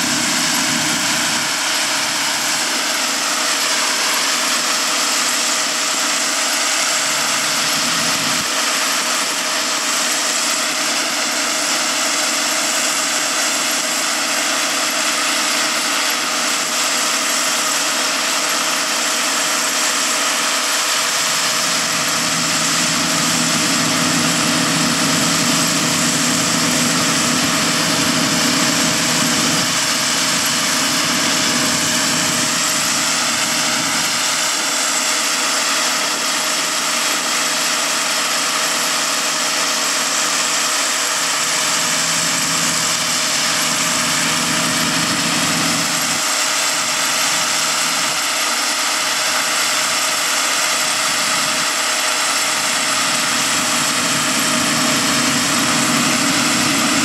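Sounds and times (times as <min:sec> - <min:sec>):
combine harvester running: 0:00.0 - 0:57.0
deeper hum: 0:20.9 - 0:34.9, 0:41.0 - 0:48.4, 0:52.4 - 0:57.0.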